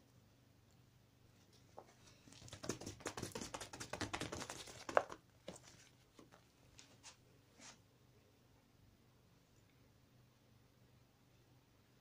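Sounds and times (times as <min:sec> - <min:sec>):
crinkly rustling: 0:04.5 - 0:07.8.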